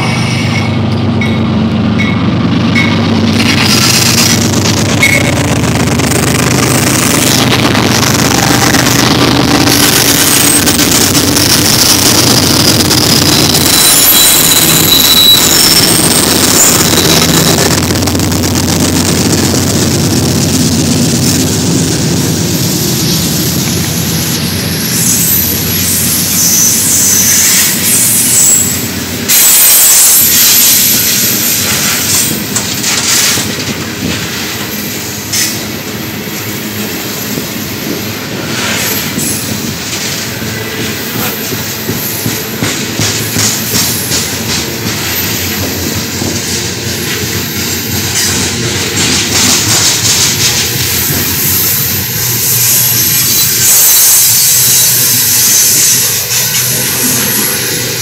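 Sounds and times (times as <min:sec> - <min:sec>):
train wheels rumbling on rail: 0:00.0 - 0:58.0
high wheel squeal: 0:06.6 - 0:17.9, 0:22.9 - 0:32.6, 0:34.5 - 0:58.0.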